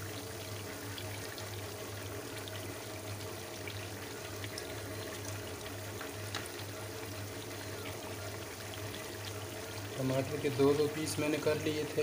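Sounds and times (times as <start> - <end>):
oil popping and crackling: 3.6 - 10.0.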